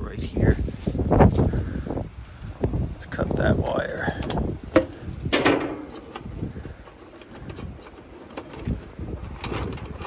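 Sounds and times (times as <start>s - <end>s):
wind buffeting microphone: 0.0s - 10.0s
clicks and rustles of handling wiring: 4.1s - 10.0s.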